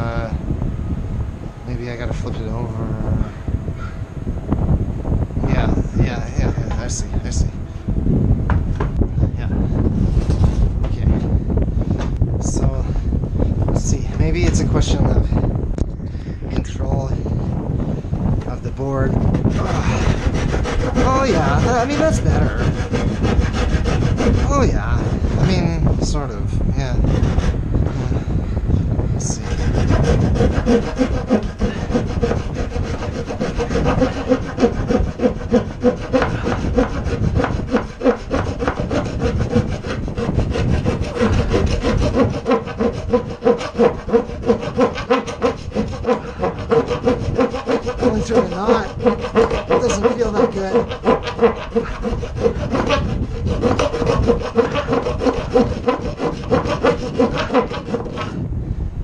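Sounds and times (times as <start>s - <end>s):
handsaw cutting wood: 19.0s - 25.8s, 26.8s - 27.6s, 29.2s - 58.4s.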